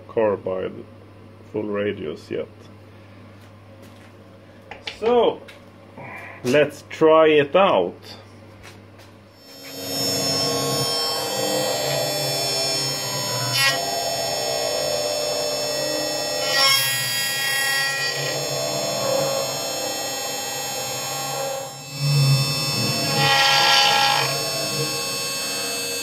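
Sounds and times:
end mill cutting steel: 0:09.4 - 0:26.0
router spindle whine: 0:09.4 - 0:26.0.

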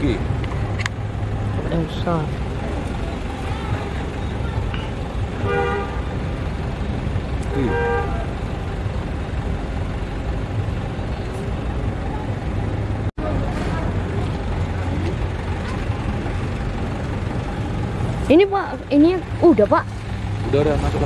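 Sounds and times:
low engine rumble: 0:00.0 - 0:21.0
horn tooting: 0:03.4 - 0:06.2, 0:07.5 - 0:08.4.

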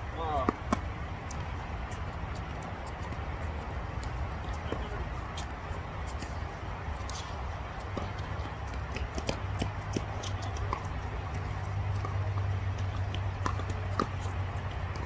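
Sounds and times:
tennis ball knocks and taps: 0:07.9 - 0:15.0.

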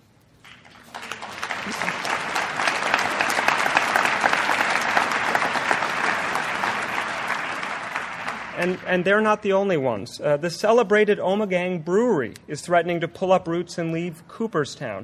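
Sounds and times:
audience applauding: 0:00.5 - 0:09.2.

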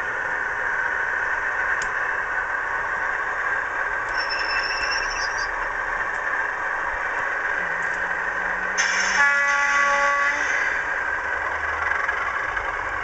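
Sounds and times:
model locomotive engine sound: 0:00.0 - 0:13.0
high squeal: 0:04.1 - 0:05.7, 0:08.8 - 0:10.9.

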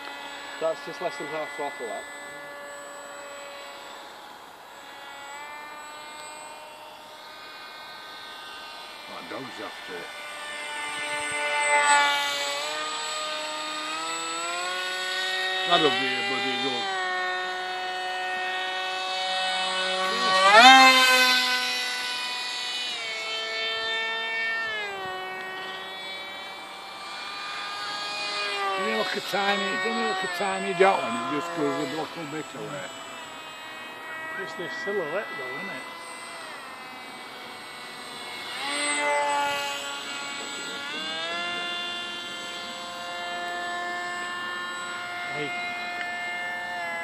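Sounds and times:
electric motor and propeller whine: 0:00.0 - 0:47.0.

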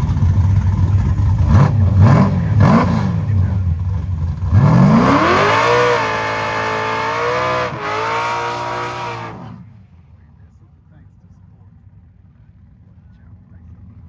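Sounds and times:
drag car engine revving: 0:00.0 - 0:09.8.

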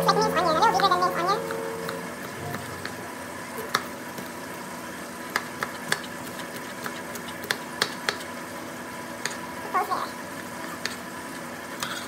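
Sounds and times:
knife chopping on plastic board: 0:01.5 - 0:03.0, 0:03.6 - 0:04.3, 0:05.3 - 0:08.3.

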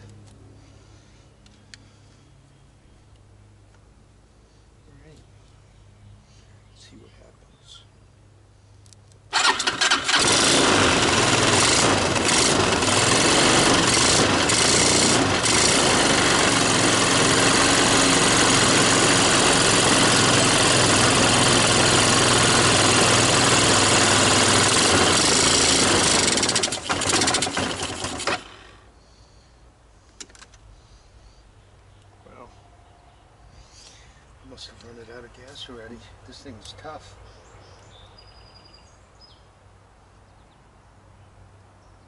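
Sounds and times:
atv engine starting and running: 0:09.3 - 0:29.0.

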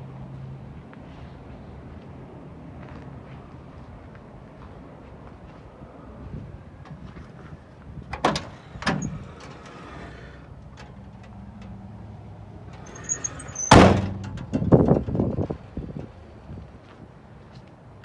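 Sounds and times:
metal door latch clunks: 0:08.1 - 0:09.5, 0:12.8 - 0:15.1
metal door slamming: 0:08.2 - 0:09.2, 0:12.8 - 0:14.9
door squeak: 0:12.8 - 0:14.3
knocks and rattles: 0:12.8 - 0:15.6.

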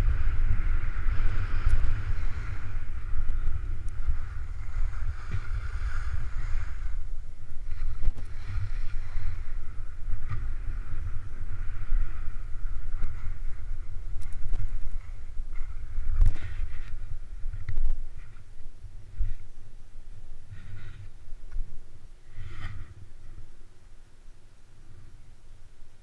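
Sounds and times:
wind buffeting microphone: 0:00.0 - 0:23.6
ski edges scraping packed snow: 0:04.0 - 0:07.0, 0:07.6 - 0:18.5, 0:22.3 - 0:23.0.

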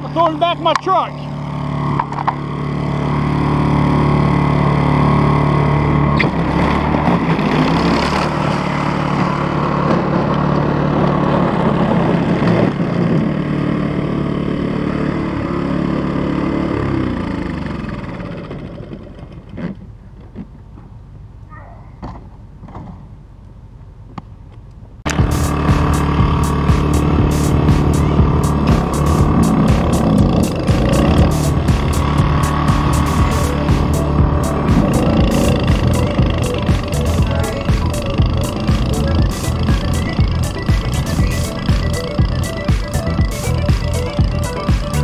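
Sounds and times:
snowblower engine running: 0:00.0 - 0:19.8, 0:25.1 - 0:45.0
quiet engine hum: 0:18.8 - 0:45.0.

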